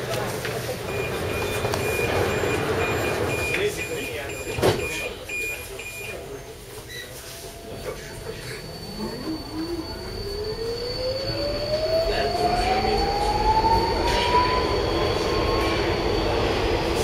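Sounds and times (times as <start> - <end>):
train motor whine: 7.5 - 17.0.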